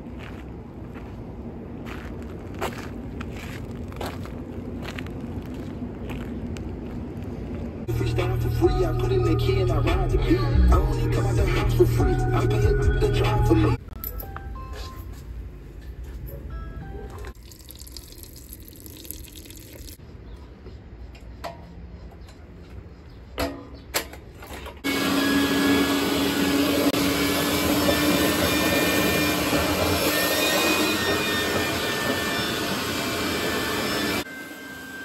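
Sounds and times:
hose sucking up water: 17.4 - 20.0
shop vacuum running: 24.8 - 35.0.

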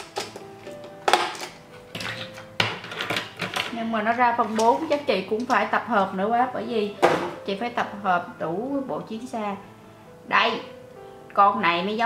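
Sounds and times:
light background music: 0.0 - 12.0.

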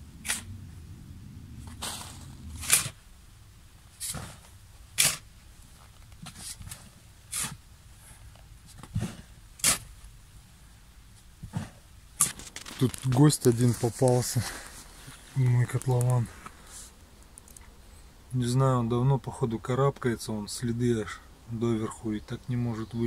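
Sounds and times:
shovel scraping sandy soil: 0.2 - 0.5, 1.6 - 3.0, 4.0 - 5.3, 6.2 - 7.6, 8.9 - 9.9.

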